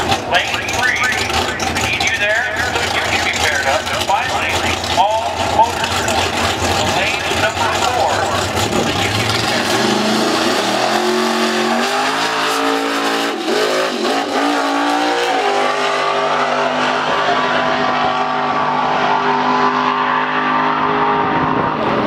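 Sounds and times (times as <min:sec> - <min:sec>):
engine revving at full throttle: 0:00.8 - 0:22.0.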